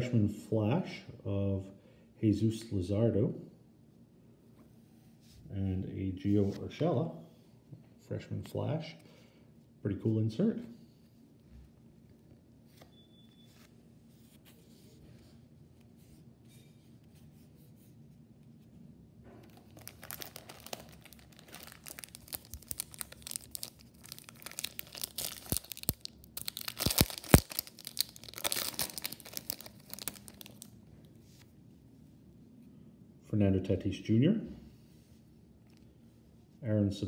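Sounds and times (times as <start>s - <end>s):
foil wrapper crinkling and tearing: 19.5s - 30.7s.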